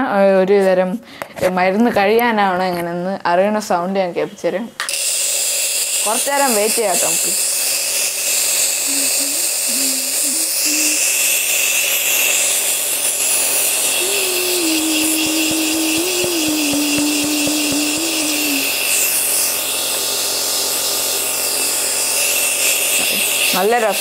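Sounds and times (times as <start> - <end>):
nebulizer pump motor humming: 4.8 - 24.0
air hissing: 4.9 - 23.7.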